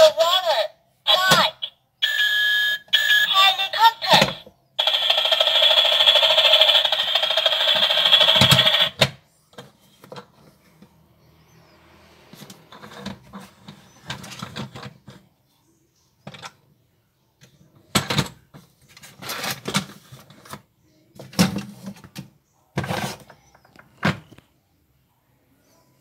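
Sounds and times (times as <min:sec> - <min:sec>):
plastic toy car clattering on shelf: 0:17.9 - 0:20.6.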